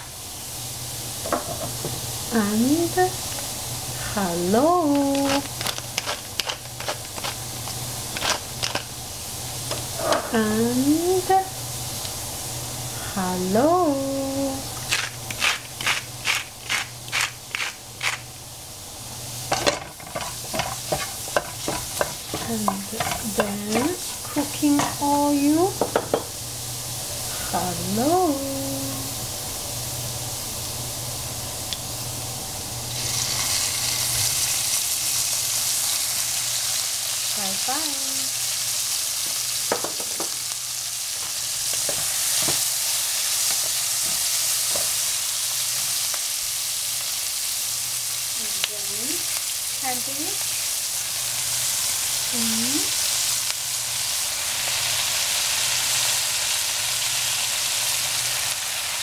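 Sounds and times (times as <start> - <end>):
food sizzling in hot oil: 0.0 - 59.0.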